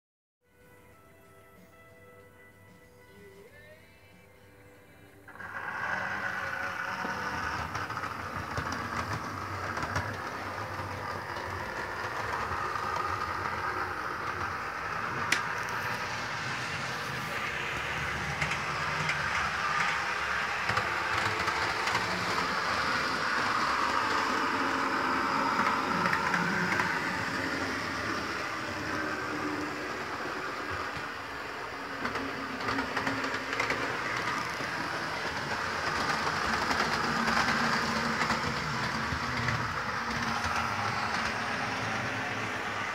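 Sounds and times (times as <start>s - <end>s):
model train whirring on track: 5.3s - 42.9s.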